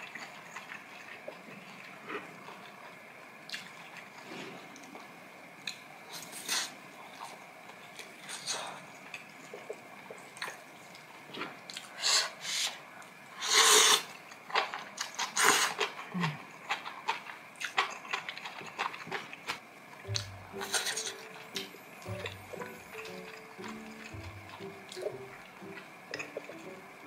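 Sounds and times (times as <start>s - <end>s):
eating clicks and rustles: 14.4s - 19.6s
background music: 20.0s - 27.0s.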